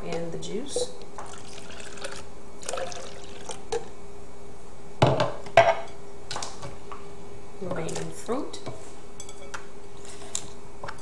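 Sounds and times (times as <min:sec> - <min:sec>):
juice pouring into bowl: 0:01.2 - 0:03.8.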